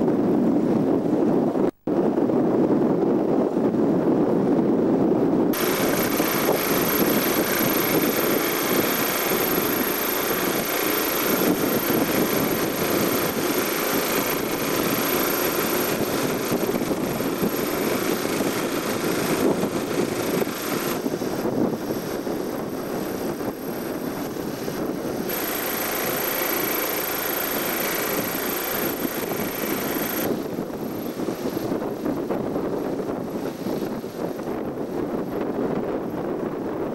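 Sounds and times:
outboard motor idling: 5.6s - 32.2s.

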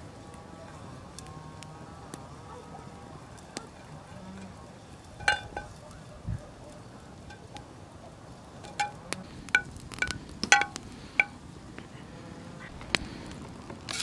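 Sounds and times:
metal utensil clinking on frying pan: 5.2s - 5.8s, 8.6s - 11.3s.

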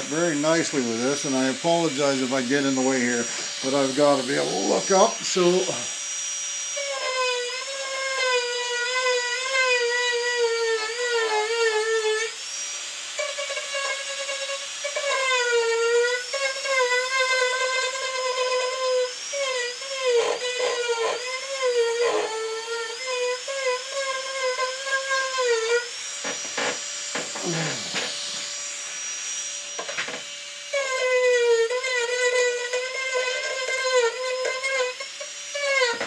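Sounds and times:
high-speed handpiece whining: 0.0s - 36.0s.

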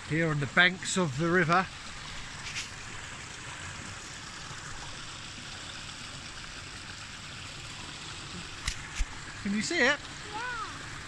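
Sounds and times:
waterfall rushing: 7.8s - 11.0s.

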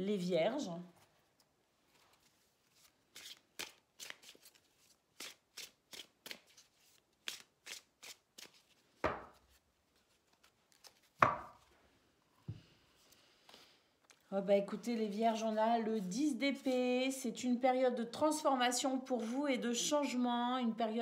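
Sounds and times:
cards being shuffled: 1.9s - 11.6s.

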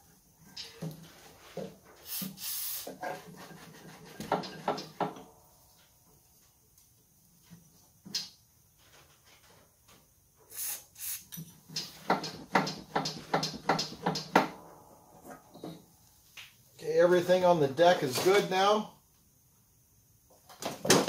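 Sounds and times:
aerosol spray squirts: 10.5s - 11.9s.

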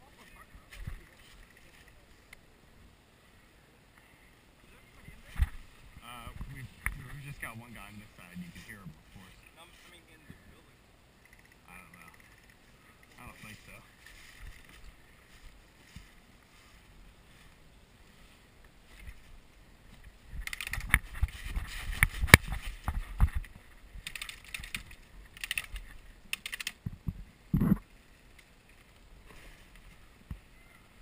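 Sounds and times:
footsteps crunching through dry leaves: 13.4s - 19.3s
gear clicking and knocking: 23.2s - 26.8s.

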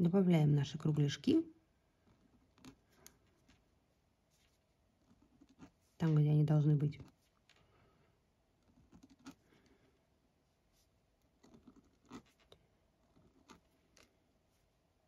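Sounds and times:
pen scratching on paper: 4.3s - 6.0s, 10.7s - 14.1s.

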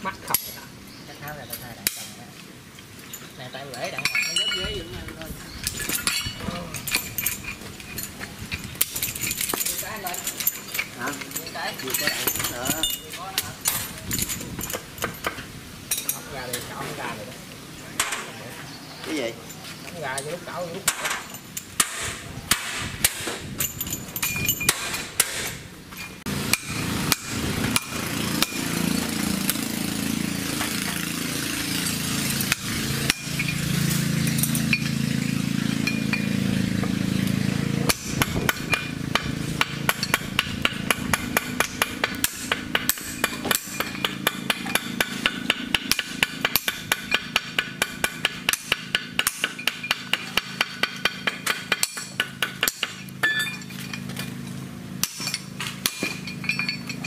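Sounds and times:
hammer striking metal: 20.8s - 25.6s, 26.4s - 29.7s, 31.8s - 36.5s, 37.9s - 54.1s.

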